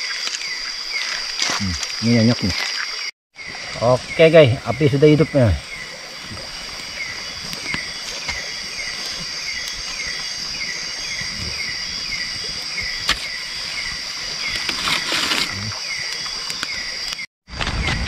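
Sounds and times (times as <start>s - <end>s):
campfire crackling: 0.0s - 17.7s
insects droning and chirping: 0.0s - 18.0s.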